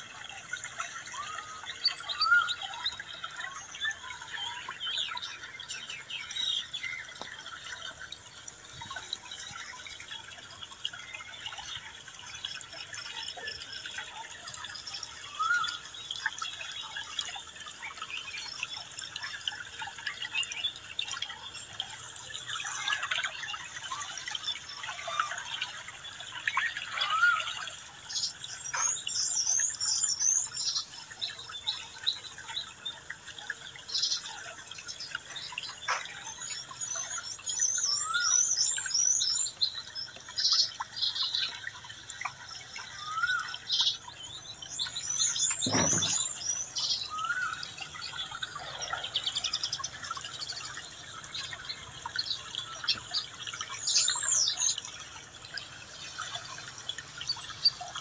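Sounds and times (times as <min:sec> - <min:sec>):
bird chirps: 0:01.1 - 0:07.3, 0:44.8 - 0:47.7
bird warbling: 0:45.3 - 0:47.6.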